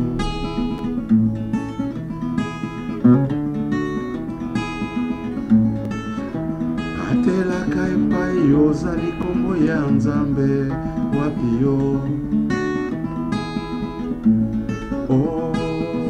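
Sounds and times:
acoustic guitar: 0.0 - 16.0
man singing: 6.9 - 12.3, 15.0 - 16.0.

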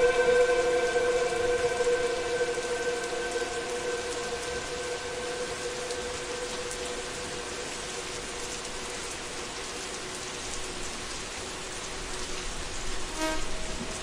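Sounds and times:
held synthesizer tone: 0.0 - 7.7
rain-like hiss: 0.0 - 14.0.

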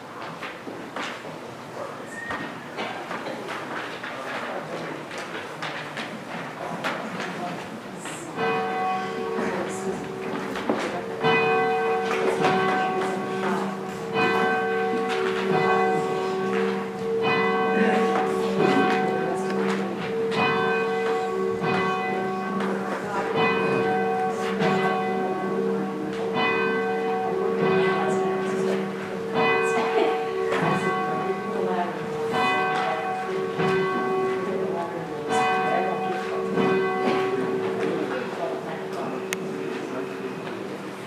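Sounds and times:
church bell ringing: 8.2 - 41.0.

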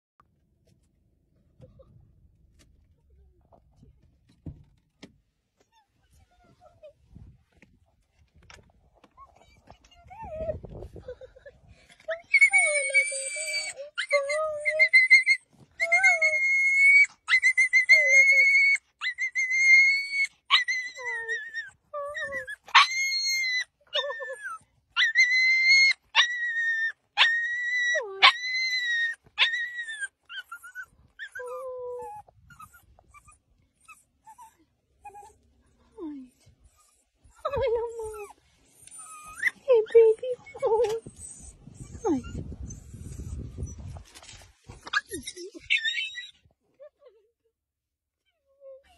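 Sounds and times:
puppy whining: 9.0 - 46.5
puppy whimpering: 12.1 - 47.1.

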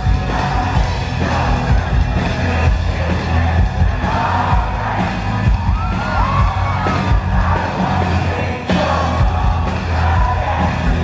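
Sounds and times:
crowd cheering: 0.0 - 11.0
crowd singing along: 0.0 - 11.0
live pop-rock band music: 0.0 - 11.0.

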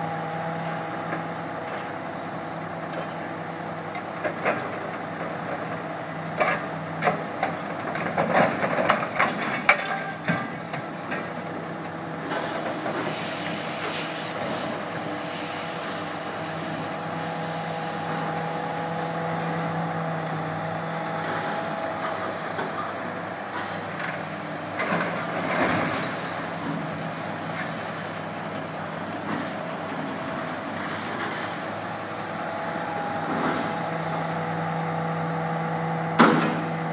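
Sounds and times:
diesel engine and hydraulics running: 0.0 - 36.9
metal clanks and bangs: 7.9 - 11.2.

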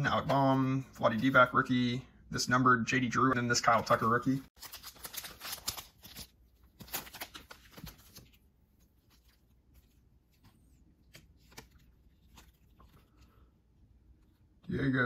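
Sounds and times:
trading cards rustling and clicking: 3.9 - 13.4.

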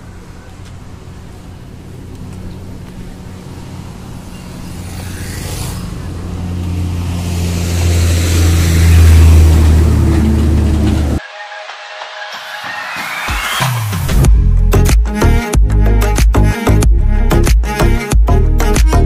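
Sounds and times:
road and wind noise: 0.0 - 11.2
vehicle engine humming: 0.0 - 11.2.

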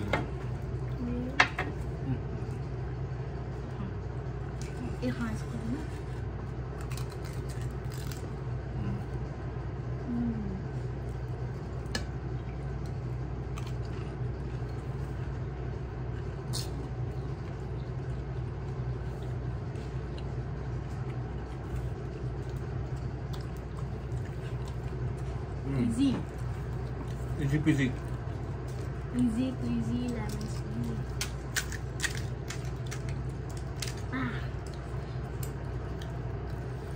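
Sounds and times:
low machine hum: 0.0 - 36.9
crisp puris cracking: 6.7 - 8.4, 30.0 - 36.8.

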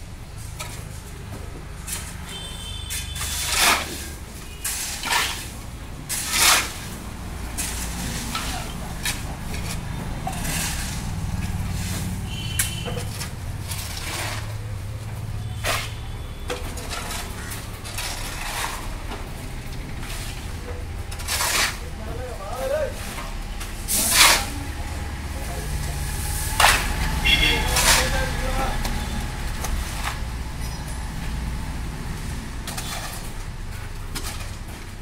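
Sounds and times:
concrete mixer hum: 0.0 - 35.0
scraping and clattering strokes: 2.9 - 14.7, 15.5 - 21.9, 22.9 - 24.6, 26.2 - 31.0, 32.6 - 34.9.

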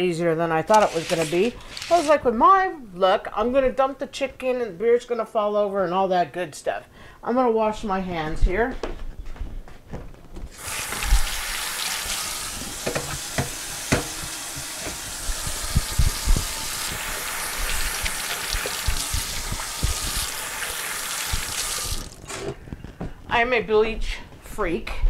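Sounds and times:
tap water running into sink: 10.5 - 22.2.

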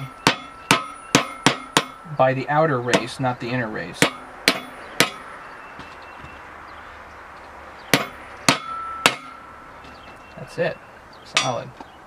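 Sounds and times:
hammer tapping metal bearing: 0.0 - 2.0, 2.9 - 3.2, 4.0 - 5.2, 7.9 - 9.4
metallic ring: 0.0 - 2.2, 8.0 - 9.6.

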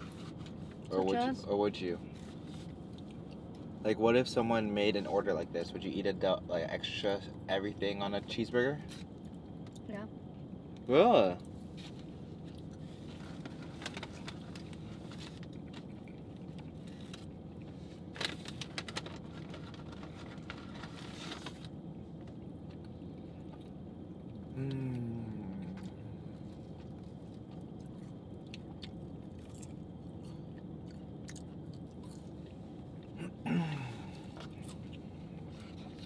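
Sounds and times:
people chewing and crunching food: 0.0 - 5.5, 7.1 - 36.0
steady low hum: 0.0 - 36.0
paper bag crinkling: 18.1 - 21.8
person saying mm: 24.5 - 25.8.

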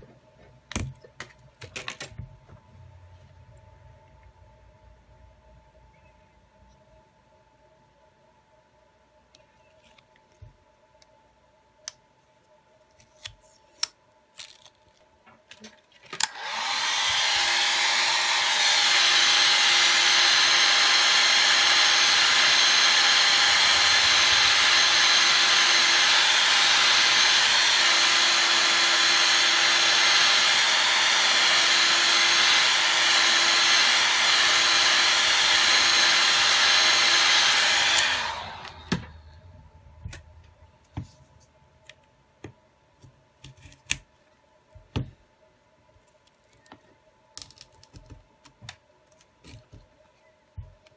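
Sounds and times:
hot-air blower whooshing: 16.2 - 39.5.

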